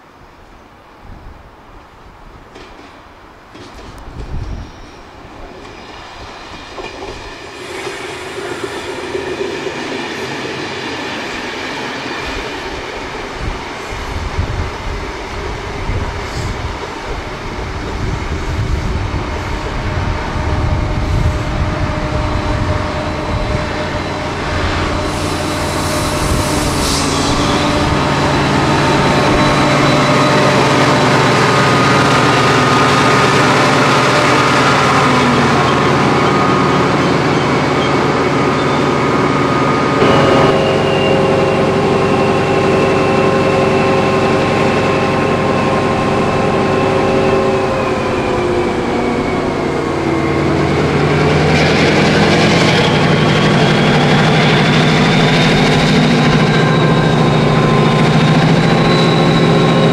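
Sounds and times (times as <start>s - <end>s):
diesel locomotive engine running: 17.0s - 59.9s.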